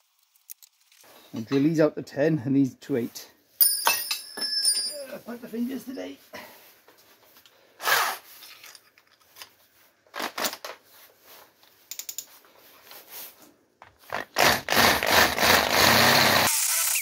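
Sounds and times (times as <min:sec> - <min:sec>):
electric drill boring into metal: 0:14.2 - 0:17.0.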